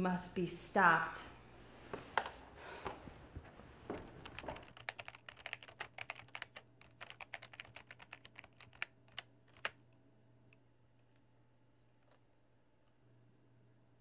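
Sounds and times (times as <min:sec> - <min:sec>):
faint steady low hum: 0:00.0 - 0:14.0
keyboard typing clicks: 0:04.2 - 0:09.8.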